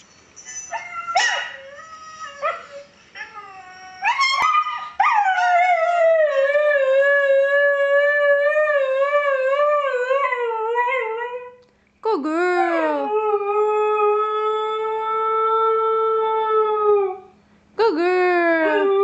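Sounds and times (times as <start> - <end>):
dog whining yelps: 0.4 - 6.0.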